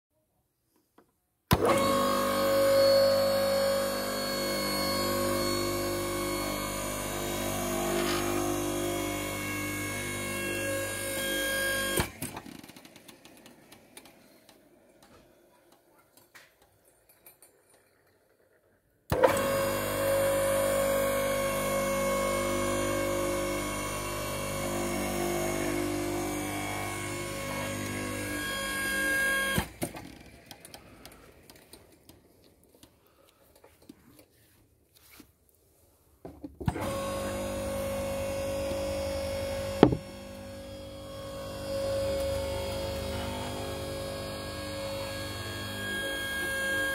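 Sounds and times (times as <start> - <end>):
electric motor running: 1.6 - 12.2, 19.1 - 29.8, 36.7 - 46.9.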